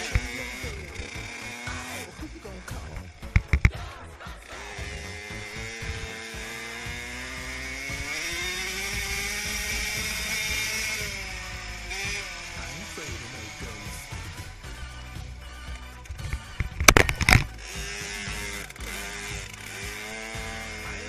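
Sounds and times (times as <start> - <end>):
dirt bike engine revving: 0.0 - 21.0.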